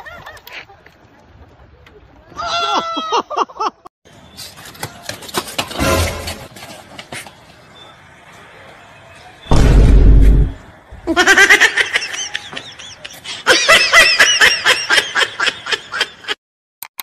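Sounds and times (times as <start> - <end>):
high-pitched laughter: 2.4 - 3.8, 11.1 - 16.4
noisy burst with heavy bass: 9.5 - 10.7.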